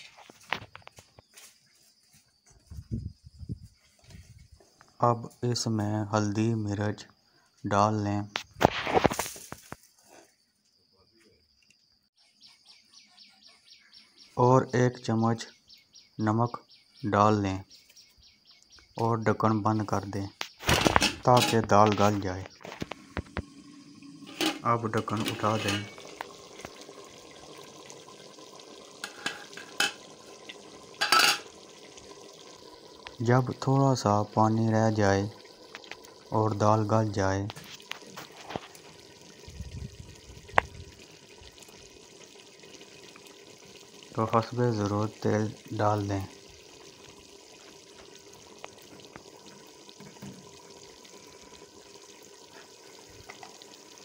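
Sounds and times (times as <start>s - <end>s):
soft bubbling of simmering pot: 18.8s - 54.0s.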